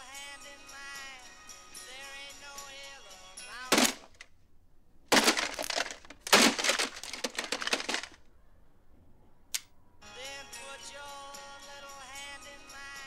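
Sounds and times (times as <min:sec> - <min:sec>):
clock radio being smashed: 0:03.7 - 0:04.2, 0:05.1 - 0:08.2.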